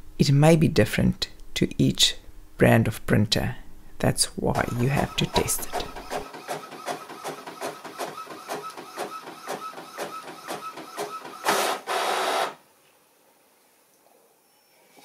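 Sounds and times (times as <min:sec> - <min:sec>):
inkjet printer printing: 0:04.6 - 0:12.6
printer rush: 0:04.6 - 0:12.6.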